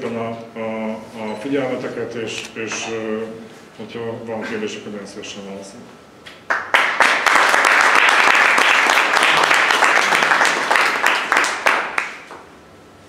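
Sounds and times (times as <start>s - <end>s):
audience applauding: 6.5s - 12.4s.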